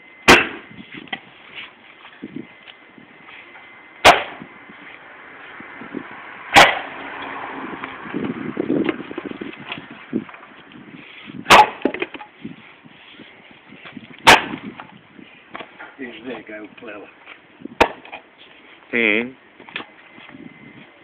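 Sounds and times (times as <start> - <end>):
axe chopping firewood: 0.3 - 1.2, 4.0 - 4.5, 6.5 - 7.3, 11.4 - 12.3, 14.2 - 14.9, 17.8 - 18.2
knocks of wood being handled: 11.5 - 12.4.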